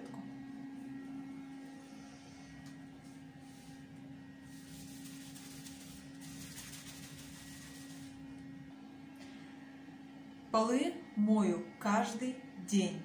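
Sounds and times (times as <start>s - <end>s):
wet paper scrubbing on tile: 3.0s - 8.2s.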